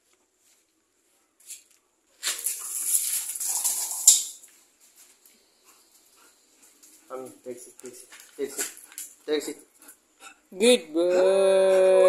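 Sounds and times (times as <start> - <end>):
dog paws crunching gravel: 1.4 - 5.2, 6.8 - 9.5.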